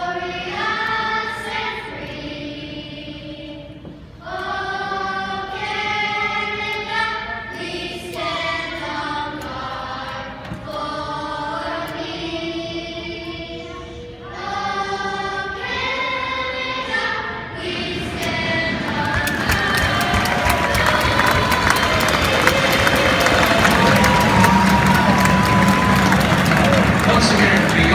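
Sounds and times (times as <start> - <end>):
children's choir singing: 0.0 - 27.9.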